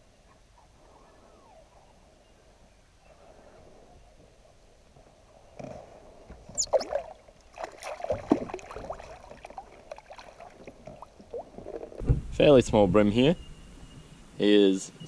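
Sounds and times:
fish splashing at water surface: 0:06.6 - 0:11.9
landing net sloshing water: 0:06.6 - 0:12.0.

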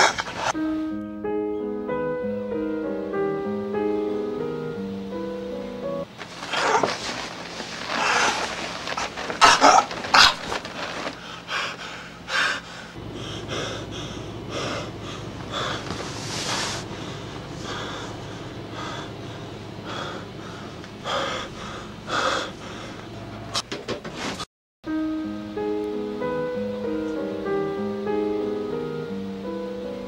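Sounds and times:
man gasping and wheezing: 0:06.4 - 0:23.3.

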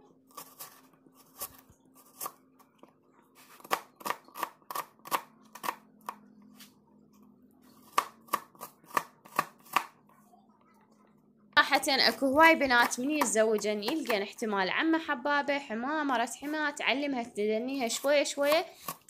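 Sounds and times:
knife slicing onion on board: 0:03.4 - 0:06.2, 0:07.8 - 0:10.0, 0:17.9 - 0:19.0.

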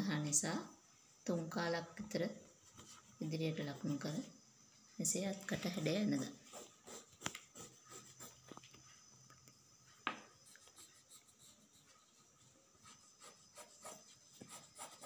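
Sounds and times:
pencil scratching on cloth: 0:02.6 - 0:04.0, 0:06.4 - 0:08.5, 0:10.4 - 0:15.0.

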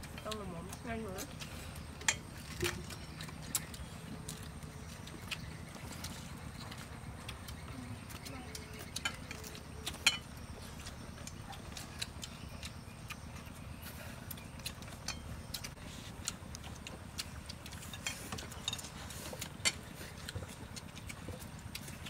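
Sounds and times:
chopsticks tapping bowls: 0:08.9 - 0:10.2.

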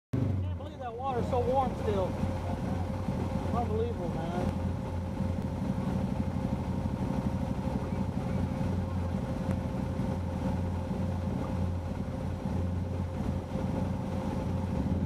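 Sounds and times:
engine idling: 0:00.2 - 0:15.0.

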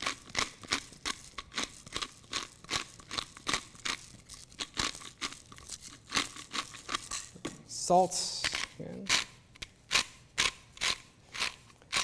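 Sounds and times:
pepper mill grinding: 0:00.0 - 0:07.4, 0:08.3 - 0:12.0.

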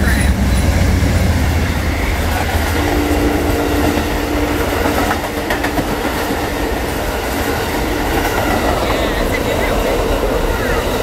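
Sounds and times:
train rumbling past: 0:00.0 - 0:11.0
wheels clicking over rail joints: 0:03.8 - 0:11.0.

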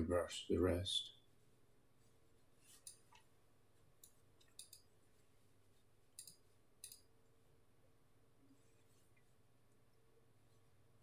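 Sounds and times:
computer mouse clicks: 0:04.0 - 0:04.9, 0:06.1 - 0:07.1.

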